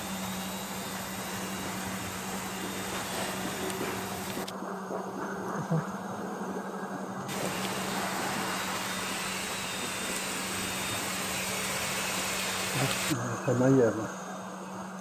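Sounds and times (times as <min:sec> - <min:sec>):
constant low hum: 0:00.0 - 0:15.0
even hiss: 0:07.3 - 0:14.2.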